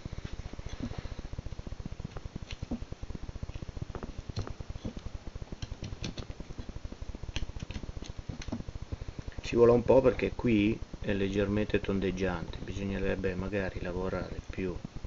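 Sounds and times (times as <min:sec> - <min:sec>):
low pulsing hum: 0:00.0 - 0:15.0
knife carving wood: 0:02.1 - 0:08.6.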